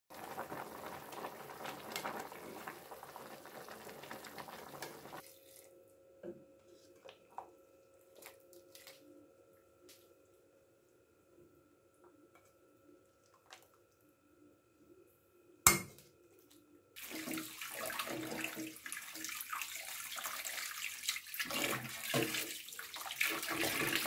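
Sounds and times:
stew bubbling: 0.1 - 5.6
faint steady hum: 4.8 - 17.0.

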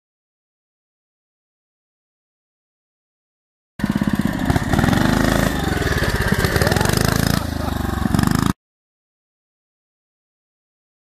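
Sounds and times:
small motorbike engine revving: 3.8 - 8.6.

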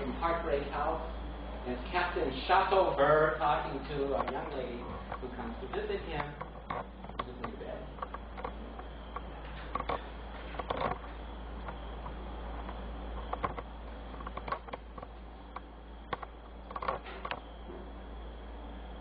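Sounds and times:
low hum: 0.0 - 19.0
light clicks and taps: 4.2 - 17.4.

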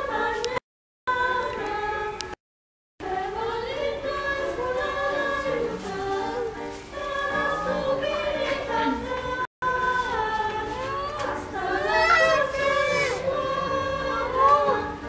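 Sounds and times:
choir singing held notes: 0.0 - 2.4, 3.0 - 15.0.

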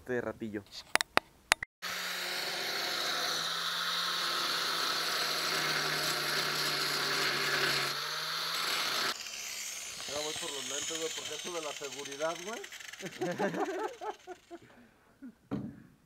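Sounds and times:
angle grinder cutting steel: 1.8 - 14.6.

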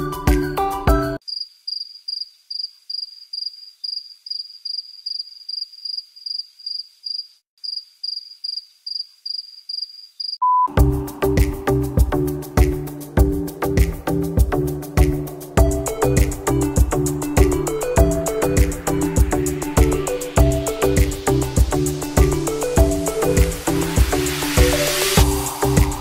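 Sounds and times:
background music: 0.0 - 1.2, 10.7 - 26.0
cricket chirping: 1.2 - 10.5
short beep: 10.4 - 10.8.

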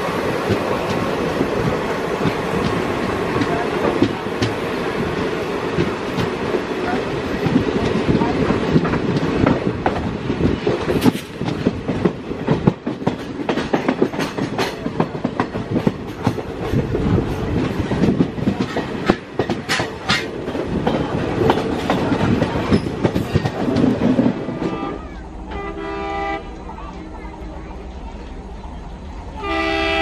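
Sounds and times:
train wheels clattering over rail joints: 0.0 - 24.7
steady train rumble: 0.0 - 30.0
locomotive horn: 24.2 - 26.6, 29.4 - 30.0.

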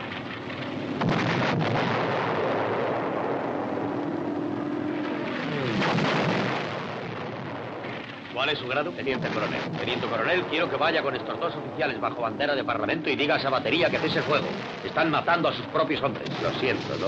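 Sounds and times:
artillery blasts: 0.0 - 17.0
long rumble: 0.0 - 17.0.

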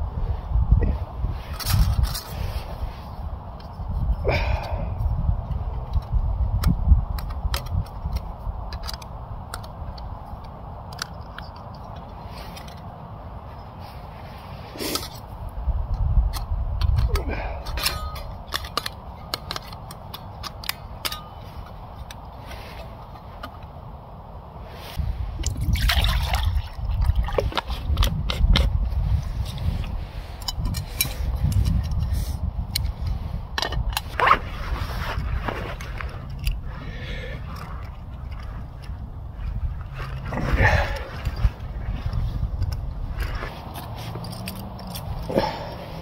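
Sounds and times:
wind rumbling on microphone: 0.0 - 46.0
camping gear clicks and knocks: 1.4 - 23.9, 25.4 - 46.0.

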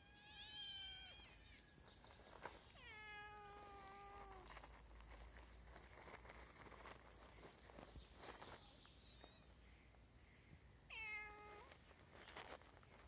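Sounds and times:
cat meowing: 2.8 - 4.5, 10.9 - 11.8.

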